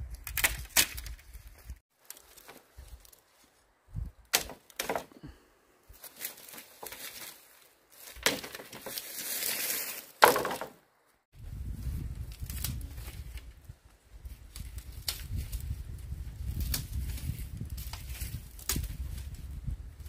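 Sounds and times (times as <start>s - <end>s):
sharp knocks and cracks: 0.2s - 1.3s, 4.3s - 5.2s, 8.0s - 9.0s, 10.2s - 10.8s, 17.8s - 18.9s.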